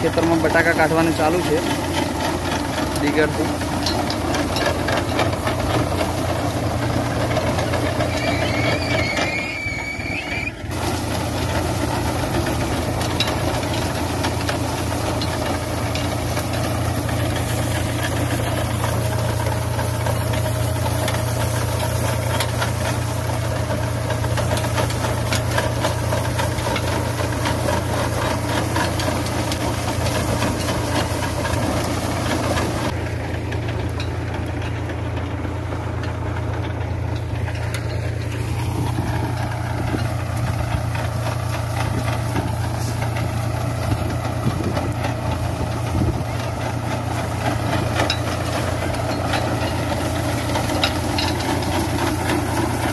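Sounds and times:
tractor engine running: 0.0s - 52.9s
chains and frame clattering: 48.0s - 52.3s.

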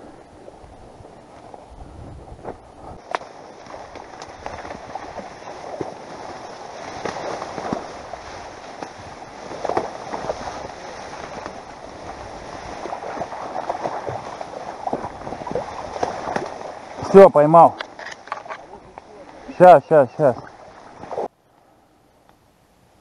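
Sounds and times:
dry reeds rustling and snapping: 2.5s - 5.9s.

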